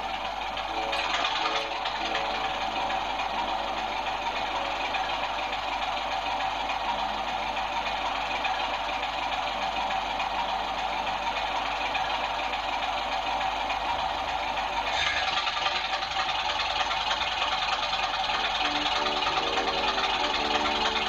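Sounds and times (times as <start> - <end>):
diesel locomotive idling through speaker: 0.0 - 21.0.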